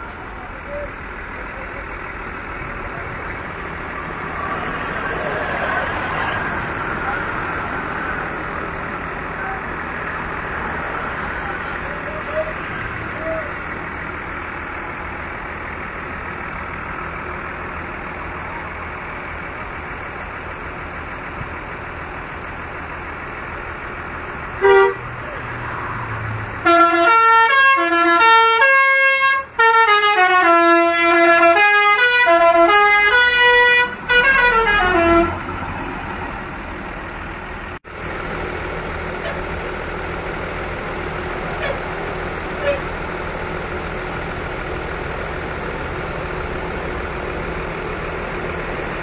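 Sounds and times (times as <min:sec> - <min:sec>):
bus engine idling: 0:00.0 - 0:49.0
multi-tone bus horn tune: 0:24.6 - 0:25.2, 0:26.6 - 0:35.5, 0:42.5 - 0:42.9.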